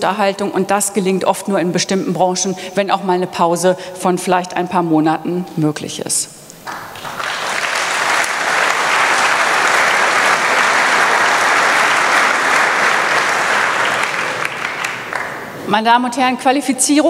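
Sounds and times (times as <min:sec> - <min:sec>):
audience applauding: 0:06.6 - 0:15.6.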